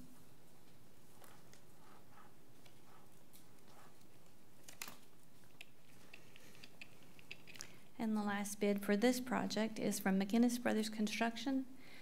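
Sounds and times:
papers rustling: 0:02.6 - 0:07.8.

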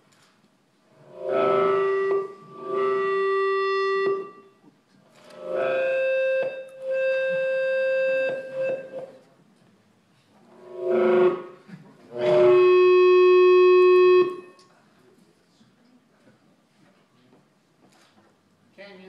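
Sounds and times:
long held musical tones: 0:00.9 - 0:09.2, 0:10.5 - 0:14.7.

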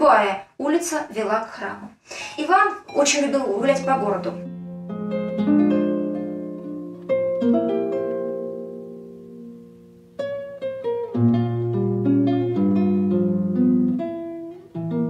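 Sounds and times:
plucked string music: 0:02.8 - 0:15.0.

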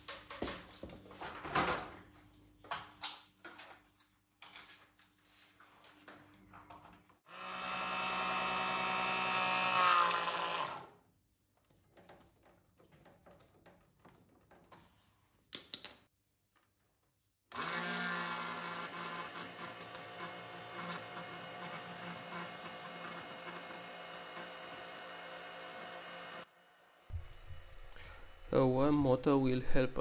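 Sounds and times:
electric pump motor hum: 0:07.3 - 0:10.8, 0:17.5 - 0:30.0.

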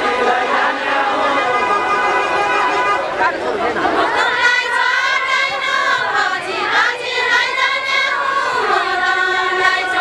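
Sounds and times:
women singing in chorus: 0:04.0 - 0:10.0.

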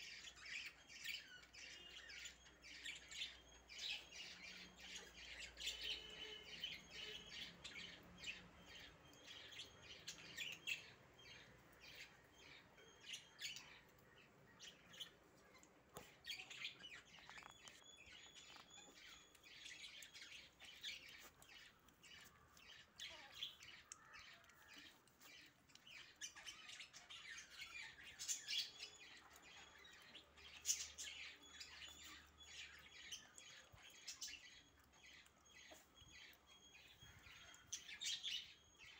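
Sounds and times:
puppies lapping and chewing: 0:00.0 - 0:38.9
puppies squeaking: 0:15.4 - 0:22.3, 0:28.6 - 0:38.9.

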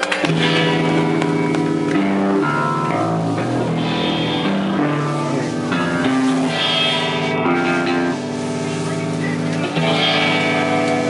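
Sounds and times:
rock band playing live: 0:00.0 - 0:11.0.

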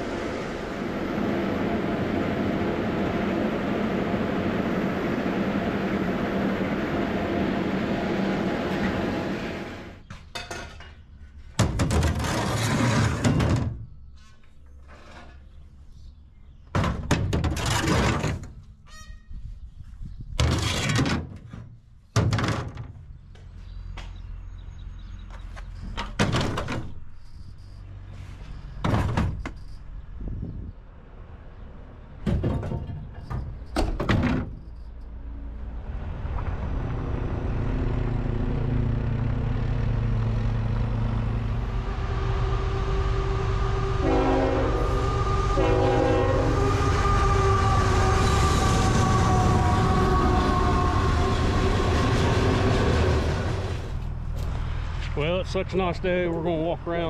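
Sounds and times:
engine rumble: 0:00.0 - 0:20.6, 0:21.7 - 0:57.0
objects thunking into truck bed: 0:11.6 - 0:13.8, 0:16.7 - 0:18.6, 0:20.4 - 0:23.0, 0:26.0 - 0:27.0, 0:28.8 - 0:29.6, 0:32.2 - 0:34.6.

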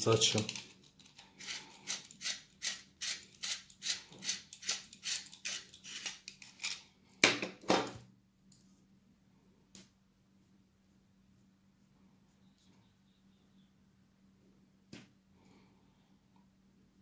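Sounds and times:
pencil scraping in hand sharpener: 0:01.4 - 0:06.2.

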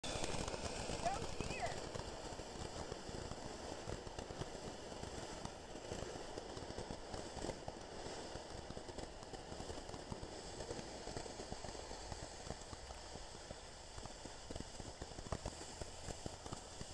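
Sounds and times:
firework fizzing crackle: 0:00.0 - 0:16.9.

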